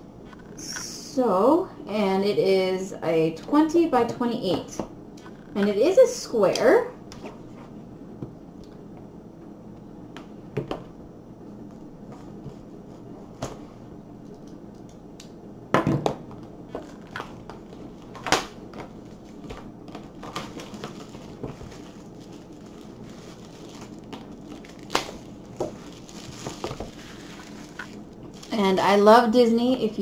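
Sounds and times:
plastic shrink-wrap crinkling: 16.7 - 29.0.

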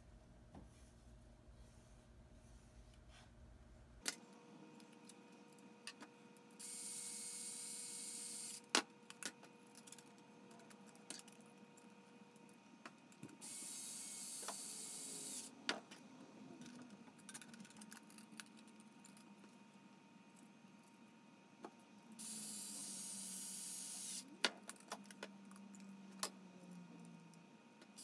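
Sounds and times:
cordless screwdriver running: 13.4 - 15.5.

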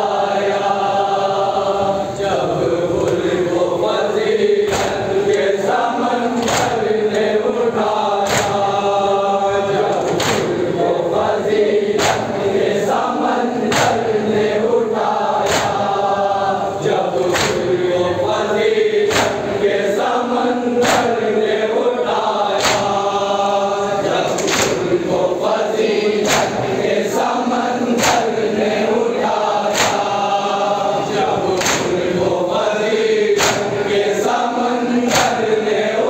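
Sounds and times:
men chanting in unison: 0.0 - 36.0
chest-beating slaps: 4.6 - 5.6, 6.4 - 7.3, 8.2 - 8.8, 9.8 - 10.6, 11.9 - 12.7, 13.6 - 14.3, 15.4 - 16.0, 17.2 - 17.8, 19.0 - 19.6, 20.8 - 21.3, 22.5 - 23.2, 24.3 - 25.0, 26.1 - 27.0, 27.9 - 28.5, 29.3 - 30.4, 31.4 - 32.2, 33.3 - 34.0, 35.1 - 35.6.

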